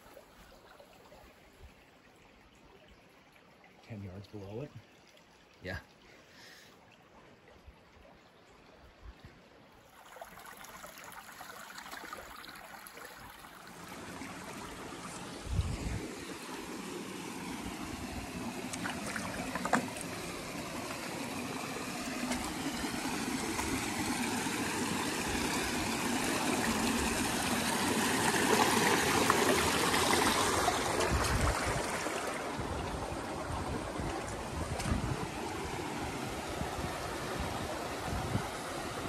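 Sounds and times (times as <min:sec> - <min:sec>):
creek water rushing over rocks: 0:09.9 - 0:39.0.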